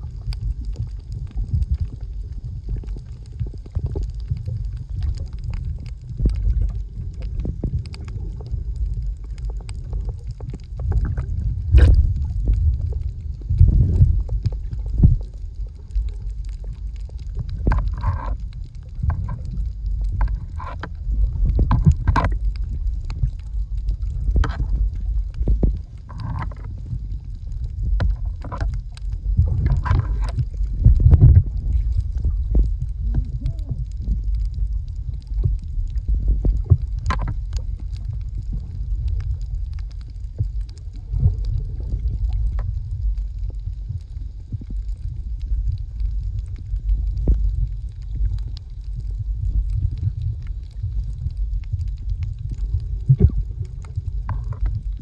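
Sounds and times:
sharp clicks and crackles: 0:00.0 - 0:55.0
underwater low rumble: 0:00.0 - 0:55.0.

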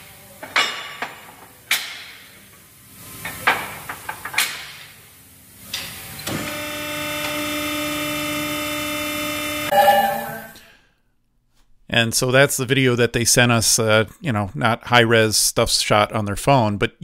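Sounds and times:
steady machine hum: 0:05.0 - 0:10.8.

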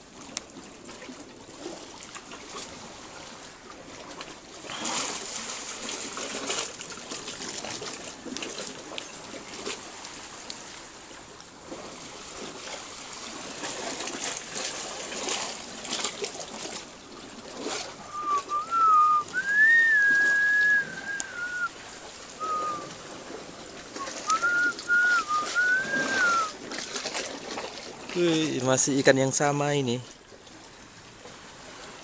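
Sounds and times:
small water splashes: 0:00.0 - 0:32.0
water trickling among rocks: 0:00.0 - 0:32.0
person whistling a tune: 0:18.1 - 0:21.7, 0:22.4 - 0:22.9, 0:24.0 - 0:26.5.

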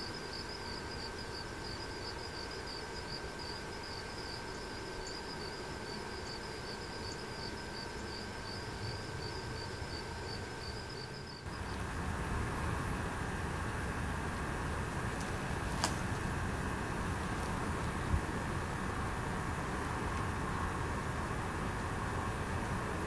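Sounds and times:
insects chirping: 0:00.0 - 0:23.0
steady outdoor hiss: 0:00.0 - 0:23.0
loud low steady noise: 0:11.4 - 0:23.0.

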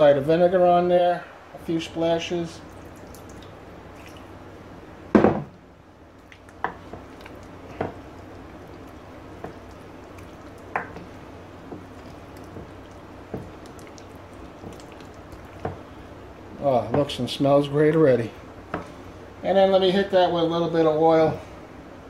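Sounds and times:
wet slaps and squelches: 0:02.8 - 0:04.3, 0:06.2 - 0:08.0.

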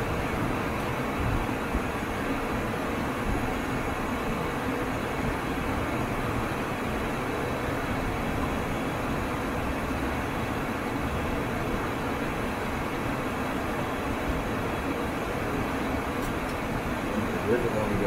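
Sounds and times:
aircraft cockpit rushing hum: 0:00.0 - 0:18.0.

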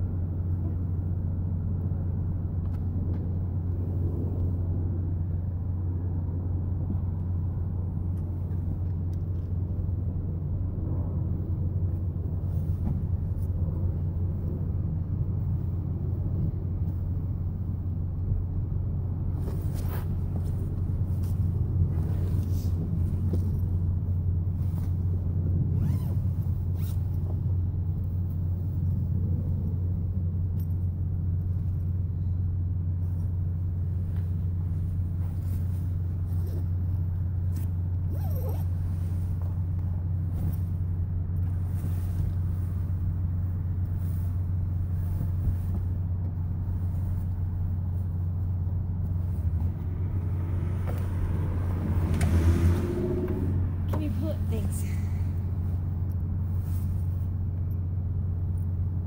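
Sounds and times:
low rumble: 0:00.0 - 0:59.0
blankets rustling and scuffing: 0:19.2 - 0:28.7, 0:33.8 - 0:53.5, 0:55.4 - 0:57.5.

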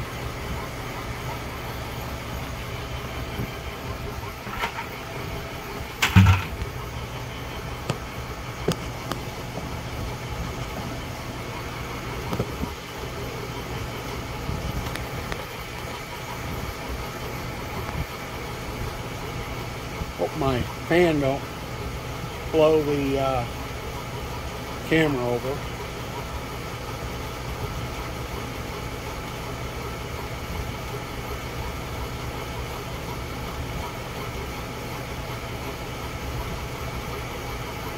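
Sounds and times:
fan blowing: 0:00.0 - 0:37.9
sharp thump: 0:06.0 - 0:06.6.

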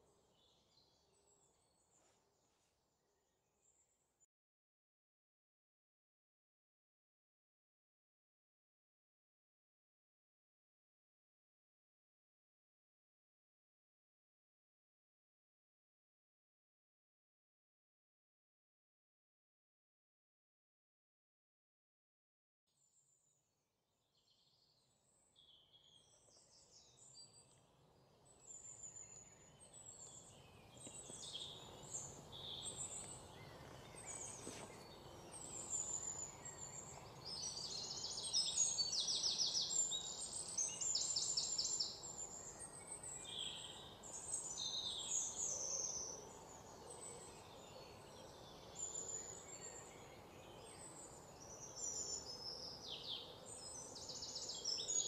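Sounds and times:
small birds chirping: 0:24.2 - 0:55.0.

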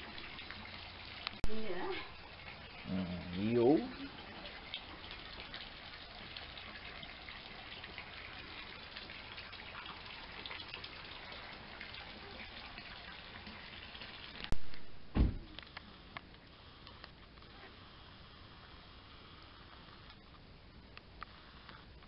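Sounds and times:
small water drips: 0:00.0 - 0:14.9
faint water trickle: 0:00.0 - 0:17.8
short low thump: 0:14.6 - 0:15.6.

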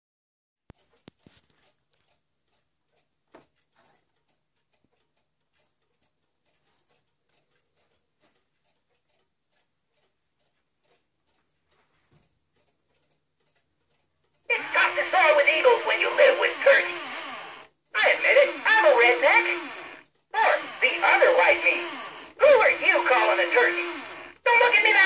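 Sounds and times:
faint ticks: 0:00.7 - 0:14.5.

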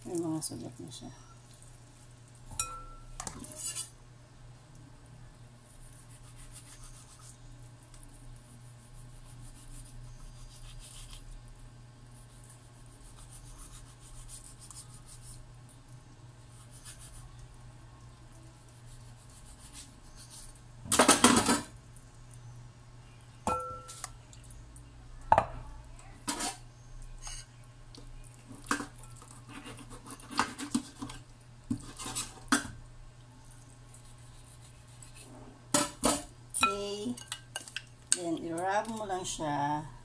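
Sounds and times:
dishes knocking and clinking: 0:20.9 - 0:21.7, 0:23.5 - 0:24.1, 0:25.3 - 0:25.6.

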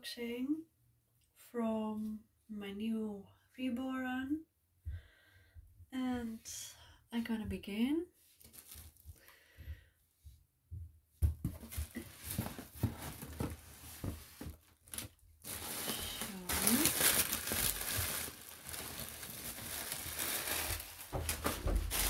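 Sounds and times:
plastic wrapping crinkling: 0:08.4 - 0:09.0, 0:11.6 - 0:22.0.

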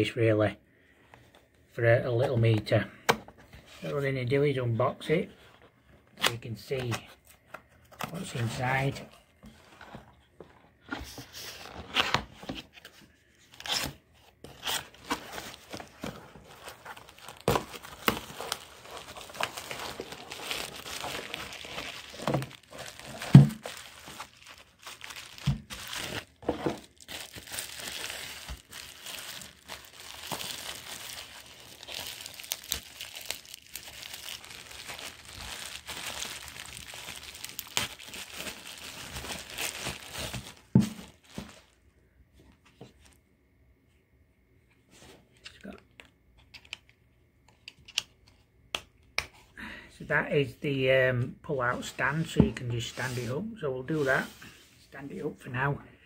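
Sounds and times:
bubble wrap crinkling: 0:14.5 - 0:41.8.

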